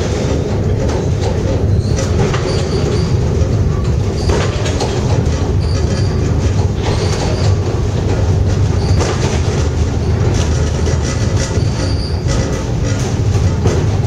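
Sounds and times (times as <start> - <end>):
funicular car rumbling on rails: 0.0 - 14.0
wheels squeaking: 0.0 - 14.0.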